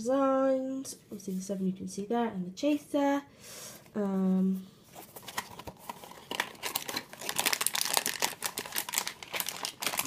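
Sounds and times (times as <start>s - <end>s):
packaging crinkling and crackling: 5.0s - 10.0s.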